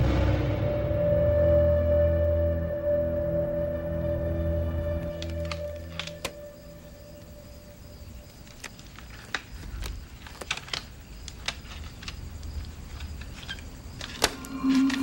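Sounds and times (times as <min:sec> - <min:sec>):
low rumble: 0:00.0 - 0:06.0.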